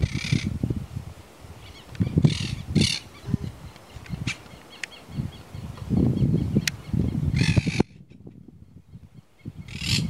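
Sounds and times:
raspy bird calls: 0.0 - 0.6, 1.6 - 8.0, 9.0 - 10.0.

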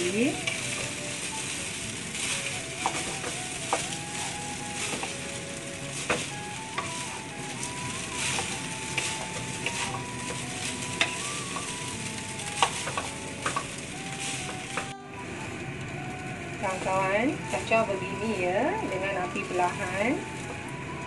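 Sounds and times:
spatula scraping rice in pan: 0.4 - 14.9.

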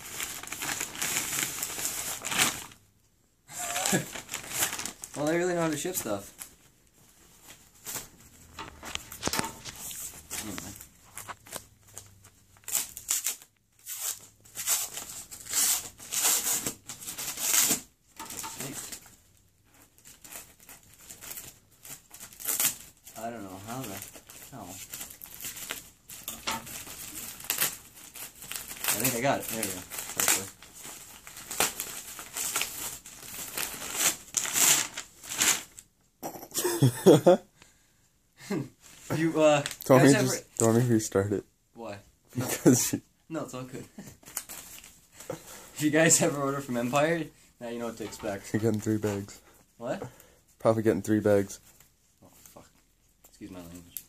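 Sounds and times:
plastic mailer bag crinkling: 0.0 - 2.8, 3.6 - 6.5, 20.2 - 35.8.

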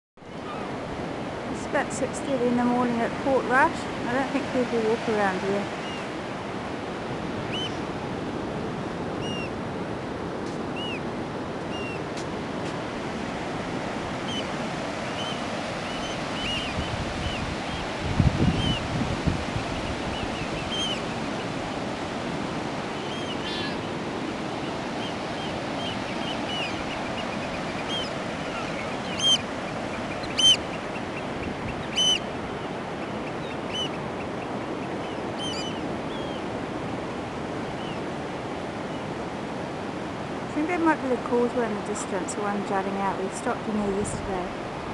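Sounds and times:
surf breaking on beach: 0.4 - 33.0
birds calling: 5.7 - 6.2, 7.2 - 7.9, 9.1 - 9.6, 10.6 - 12.2, 12.8 - 19.0, 19.7 - 21.8, 22.4 - 36.6, 37.4 - 38.2.

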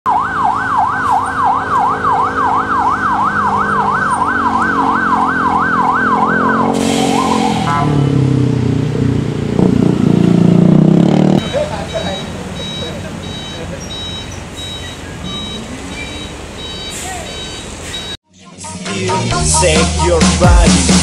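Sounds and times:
siren yelping: 0.1 - 8.2
heavy vehicle engines: 0.1 - 21.0.

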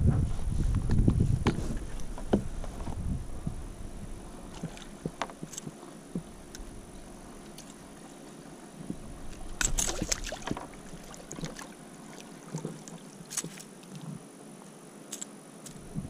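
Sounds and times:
fish thrashing and splashing water: 4.5 - 5.8, 9.3 - 13.8.

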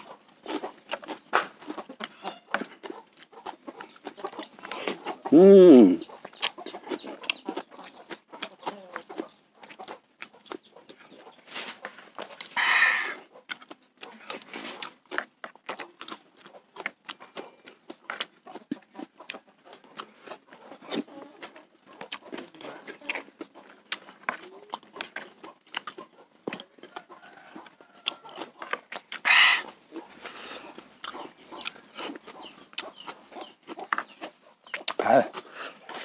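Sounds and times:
man chewing and slurping: 0.0 - 36.0.

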